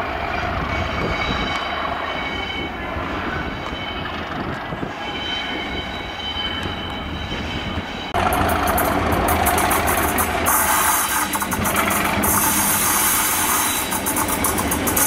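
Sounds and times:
diesel locomotive engine rumble: 0.0s - 15.0s
sharp clicks and rattles: 8.2s - 15.0s
wheels squealing on curves: 9.4s - 15.0s.

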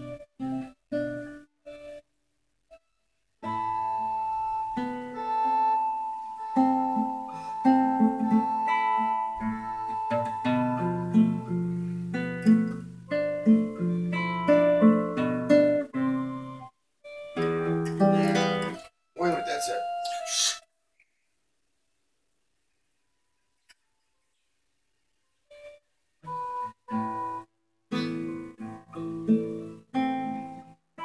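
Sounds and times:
plucked guitar music: 0.0s - 2.0s, 3.4s - 20.5s, 25.5s - 31.0s.

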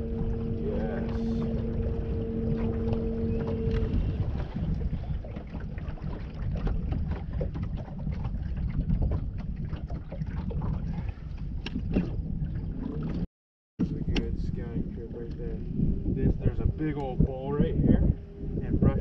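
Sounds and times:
steady hum: 0.0s - 6.9s
water lapping against hull: 0.0s - 19.0s
wind buffeting microphone: 0.0s - 19.0s.

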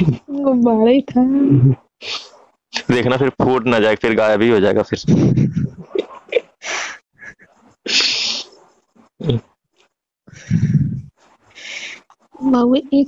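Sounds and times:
person breathy exhales: 10.3s - 12.0s.

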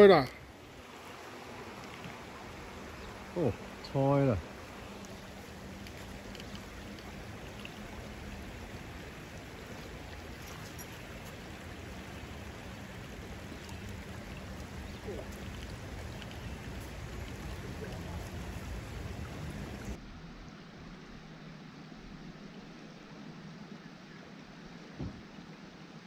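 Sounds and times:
creek water running over stones: 0.0s - 20.0s.

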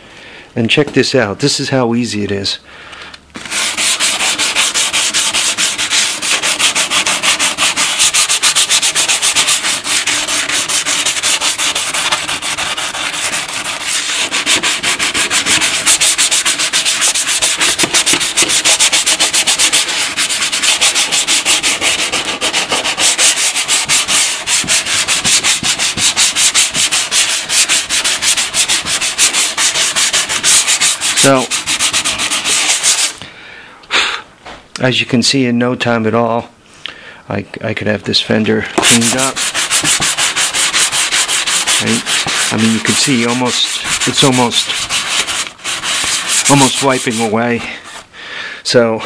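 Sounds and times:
sanding sponge rasping on metal: 3.5s - 33.2s, 38.8s - 48.1s.

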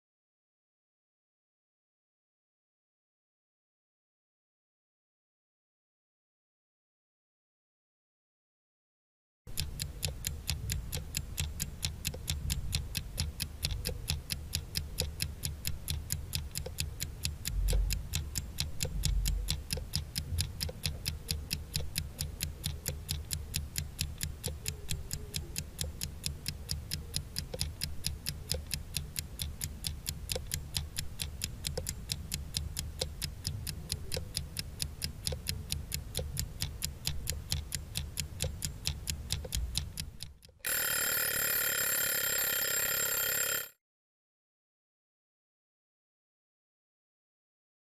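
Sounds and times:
clock ticking fast: 9.5s - 43.7s.

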